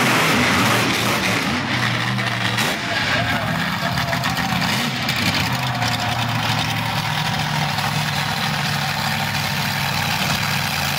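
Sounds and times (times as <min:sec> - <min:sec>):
truck engines idling: 0:00.0 - 0:10.9.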